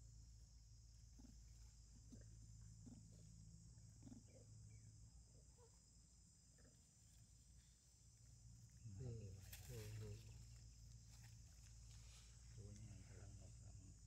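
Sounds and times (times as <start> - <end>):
faint high insect drone: 0.0 - 14.0
soft ticks and rustles: 9.4 - 13.0.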